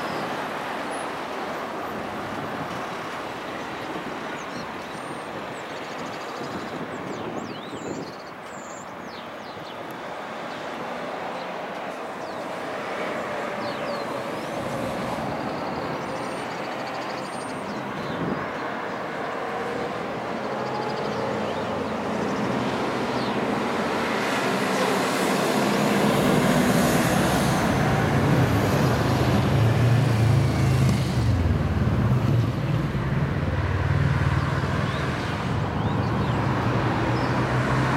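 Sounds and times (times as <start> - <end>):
road traffic passing: 0.0 - 37.9
truck diesel engine passing: 18.7 - 37.9.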